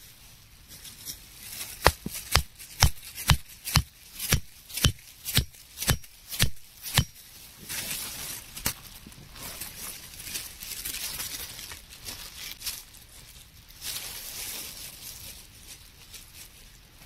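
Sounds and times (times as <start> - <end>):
stake hammered into snowy ground: 1.8 - 7.2.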